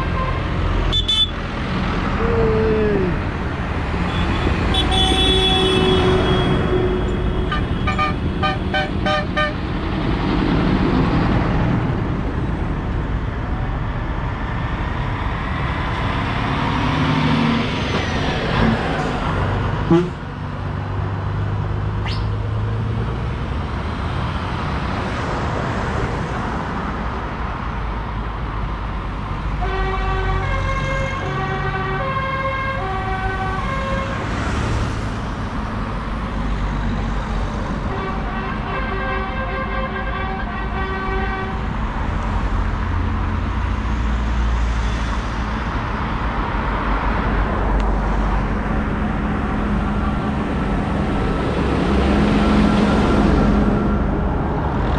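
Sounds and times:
horn alternating two pitches: 19.9s - 20.2s
short horn toots: 19.9s - 20.2s.

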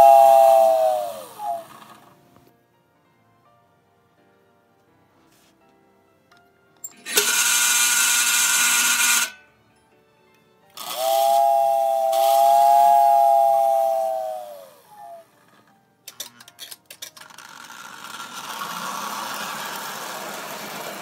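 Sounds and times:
toy train whistle: 0.0s - 2.0s, 6.9s - 9.4s, 10.8s - 15.6s, 17.5s - 21.0s.

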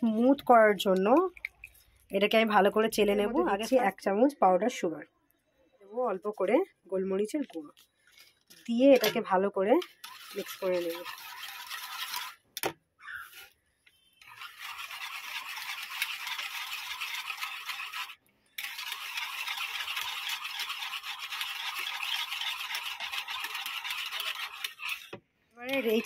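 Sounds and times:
wire whisk beating in a bowl: 9.8s - 12.3s, 14.2s - 25.1s.

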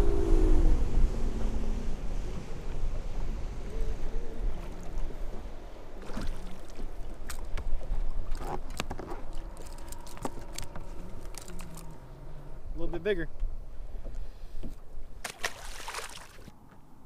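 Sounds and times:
wind on microphone: 0.0s - 12.8s
water against boat hull: 3.8s - 12.0s.

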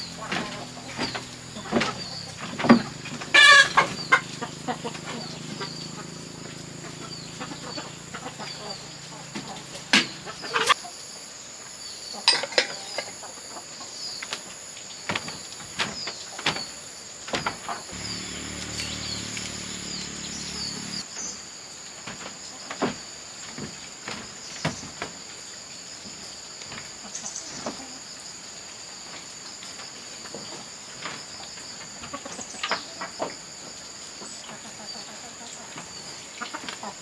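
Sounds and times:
insect drone with trill: 0.0s - 13.2s, 17.9s - 21.8s
knocks and clatters of objects: 0.2s - 4.2s, 15.1s - 19.0s.

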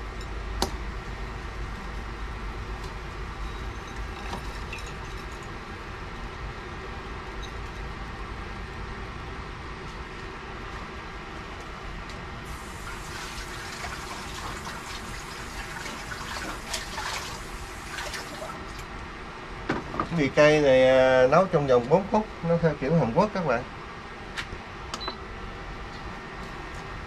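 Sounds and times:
low background hum: 0.0s - 27.0s
light clatters of objects: 2.8s - 5.6s
tap water running into sink: 12.5s - 18.6s.

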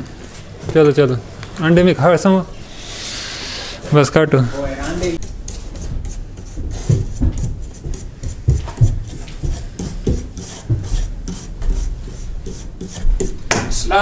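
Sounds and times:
stick scraping wall panel: 5.2s - 13.8s.

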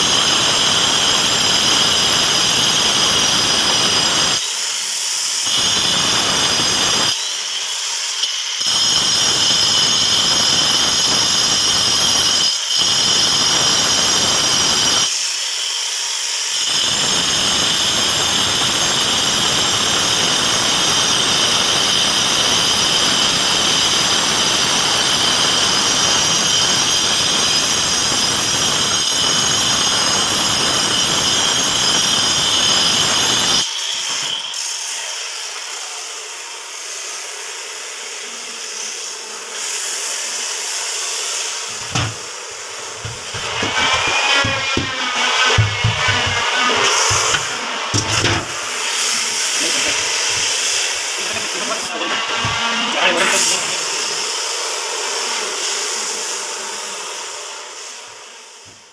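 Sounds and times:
angle grinder motor whine: 0.0s - 58.9s
disc grinding stone: 41.7s - 48.6s.

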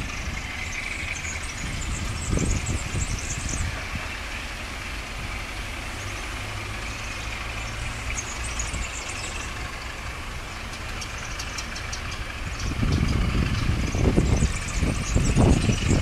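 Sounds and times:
diesel locomotive engine droning: 0.0s - 16.0s.

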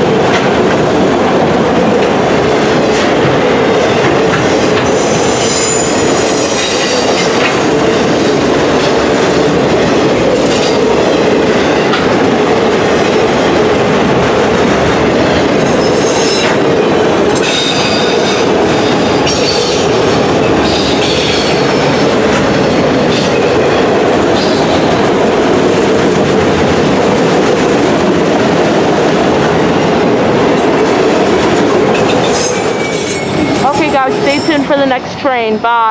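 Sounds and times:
train wheels rolling on rail: 0.0s - 35.9s
high-pitched metal squeals: 32.2s - 34.7s.

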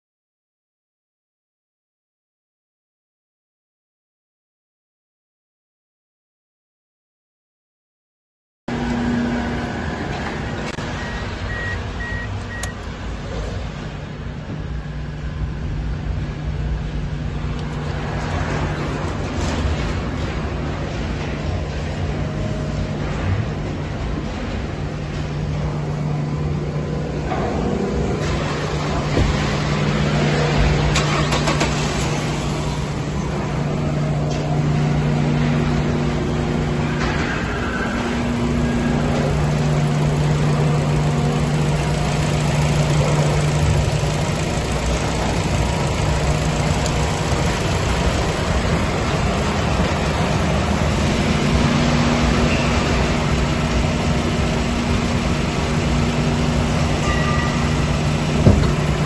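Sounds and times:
car engine idling: 25.8s - 36.9s, 38.2s - 59.0s.

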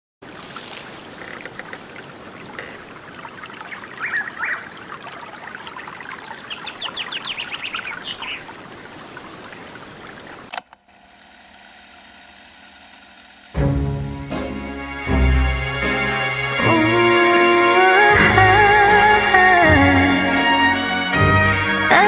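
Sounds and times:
water trickling: 0.2s - 10.5s
birds chirping: 1.1s - 10.5s.

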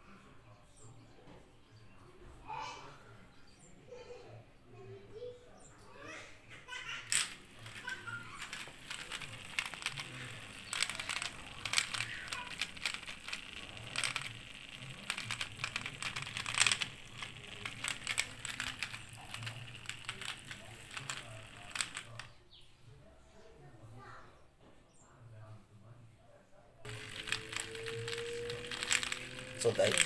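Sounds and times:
crackling rattle: 7.1s - 22.3s, 26.9s - 30.0s
drain pump motor hum: 26.9s - 30.0s.

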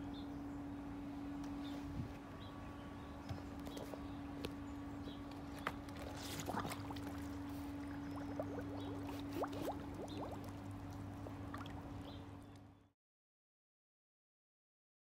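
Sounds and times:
steady low hum: 0.0s - 12.9s
water gurgling and bubbling: 6.0s - 12.4s.

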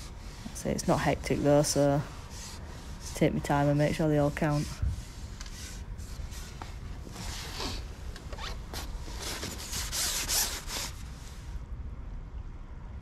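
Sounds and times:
fishing pole swishing and rubbing: 0.0s - 11.6s
low wind rumble: 0.0s - 13.0s.

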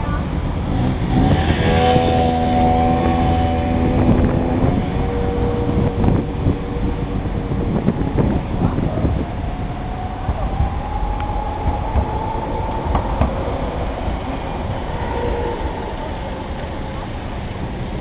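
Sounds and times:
motorbike engine passing: 0.0s - 18.0s
road riding rumble: 0.0s - 18.0s.

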